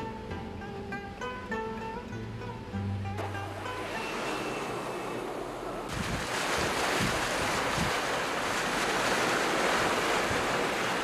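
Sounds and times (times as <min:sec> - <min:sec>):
floodwater rushing: 0:03.2 - 0:11.0.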